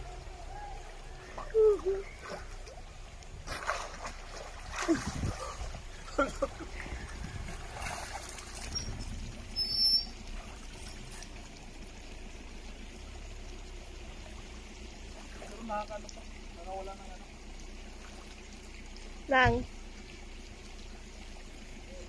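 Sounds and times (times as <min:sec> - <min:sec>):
stream trickling: 0:00.0 - 0:22.0
person wading and splashing: 0:01.1 - 0:12.2.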